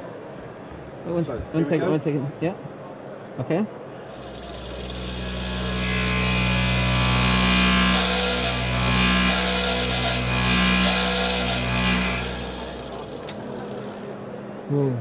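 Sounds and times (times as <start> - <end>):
mixer humming and throbbing: 4.1 - 14.3.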